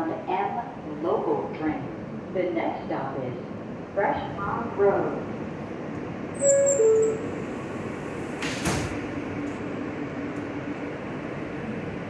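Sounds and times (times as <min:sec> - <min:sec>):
train doors closing with thud: 0:06.0 - 0:10.6.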